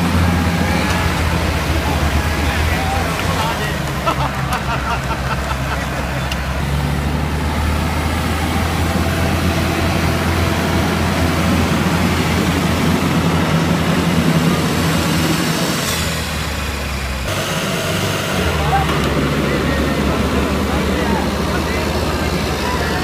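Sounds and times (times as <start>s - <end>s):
diesel tractor engines under load: 0.0s - 23.0s.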